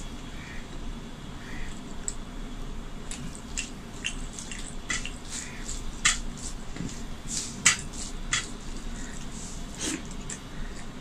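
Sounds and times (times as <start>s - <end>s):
fingers squelching rice on plate: 3.1s - 11.0s.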